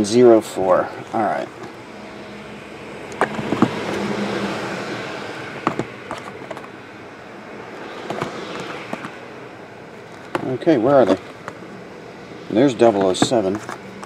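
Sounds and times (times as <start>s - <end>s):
boxes knocking on table: 3.2s - 3.8s, 5.6s - 6.6s.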